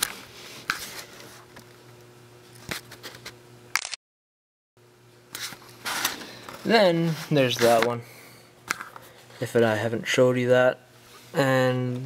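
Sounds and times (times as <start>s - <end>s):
sharp clicks: 3.8s - 4.0s
faint steady hum: 4.8s - 12.0s.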